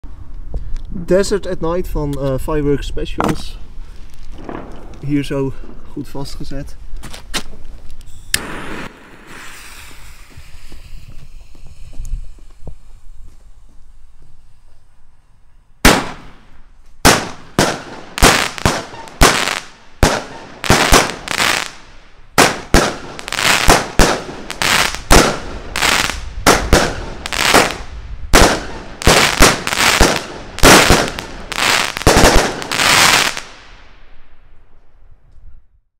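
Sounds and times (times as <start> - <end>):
firework cake firing: 8.4 - 13.2, 15.8 - 21.8, 22.4 - 33.7.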